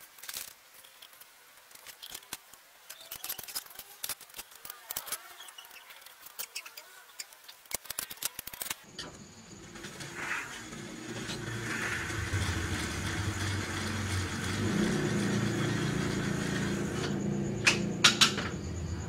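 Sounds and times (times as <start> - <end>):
motor engine running: 9.2 - 19.0.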